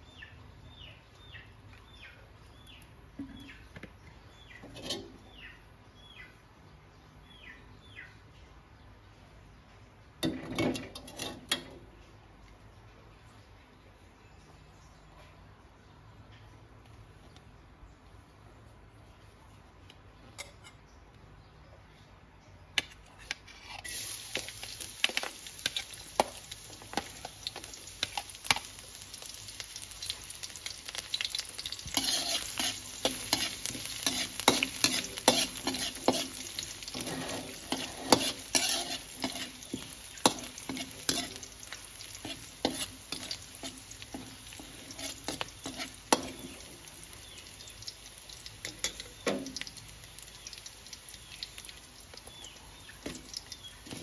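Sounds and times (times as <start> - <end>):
garlic and chilies sizzling: 0.0 - 6.3, 10.1 - 12.6, 22.8 - 54.0
metal spatula scraping a wok: 4.6 - 5.3, 10.3 - 11.8, 23.2 - 28.7, 31.6 - 46.7.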